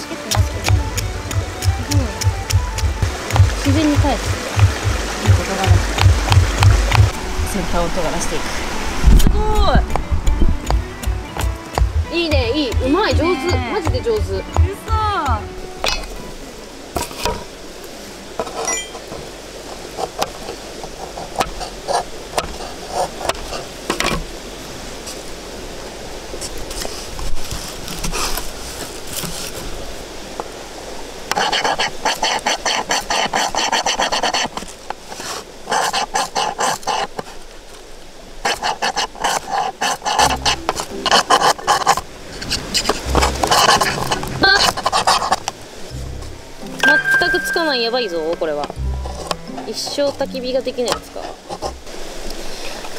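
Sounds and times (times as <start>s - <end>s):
knife scraping ferro rod: 31.3s - 37.4s, 38.4s - 45.5s, 50.9s - 51.9s.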